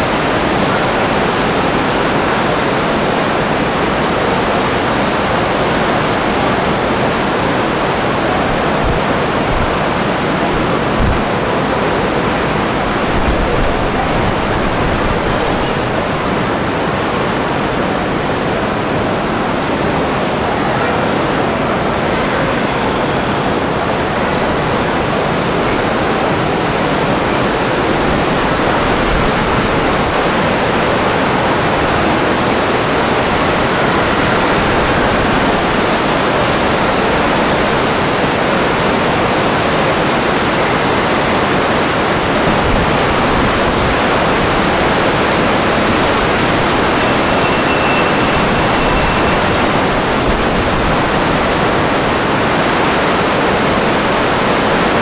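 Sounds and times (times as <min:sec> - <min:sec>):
loud steady rushing noise: 0:00.0 - 0:55.0
faint high tone: 0:45.6 - 0:51.7.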